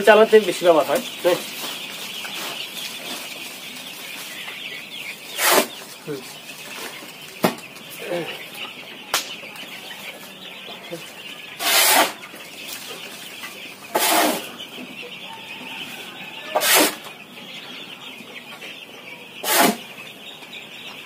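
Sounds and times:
chickens clucking: 0.0 - 21.0
shovel scraping litter: 5.4 - 5.7, 11.6 - 12.2, 13.9 - 14.5, 16.5 - 17.0, 19.4 - 19.8.

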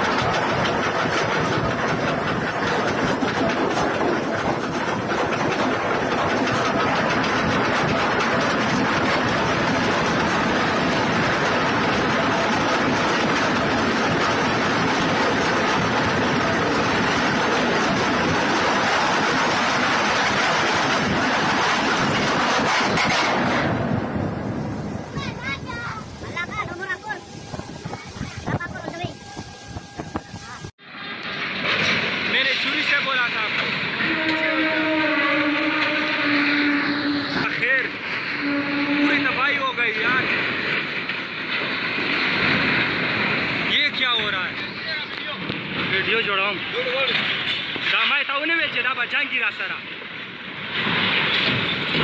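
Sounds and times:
seawater rushing over deck: 0.0 - 30.8
wind on microphone: 24.2 - 30.7.

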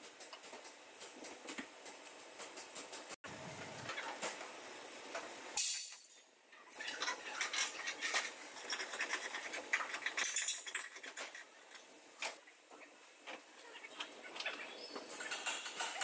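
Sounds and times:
metal clinking and scraping: 5.6 - 12.4, 15.0 - 16.0.

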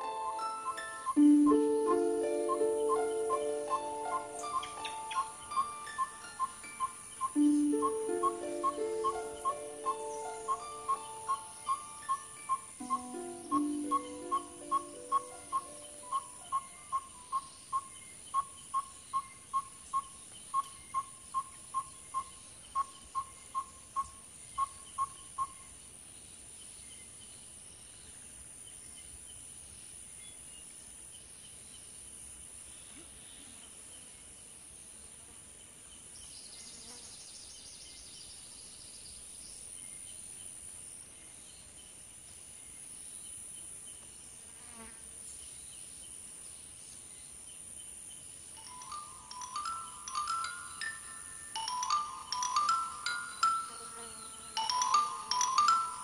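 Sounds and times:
insect trill: 0.0 - 27.4, 39.0 - 56.0
insect peeping: 0.0 - 29.4, 35.9 - 56.0
insects buzzing: 0.0 - 56.0.

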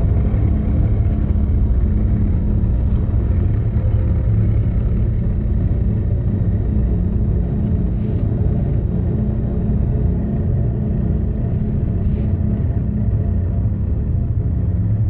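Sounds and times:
ambient drone music: 0.0 - 15.0.

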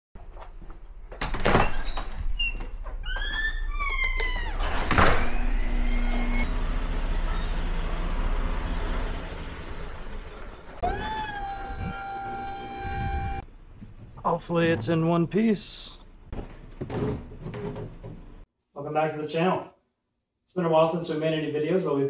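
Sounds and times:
garage door squeaking: 1.2 - 13.5
garage door motor running: 4.1 - 13.4.

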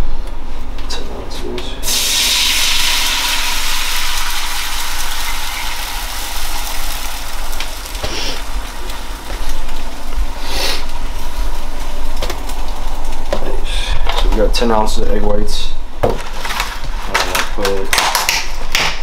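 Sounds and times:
egg sizzling in a frying pan: 1.8 - 13.3
low hum: 2.4 - 14.1.

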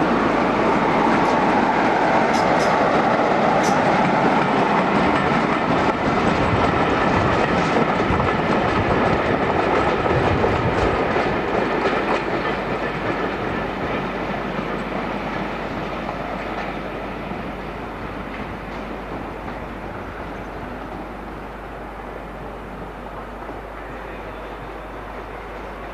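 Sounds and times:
train wheels clattering over rail joints: 1.0 - 17.0.

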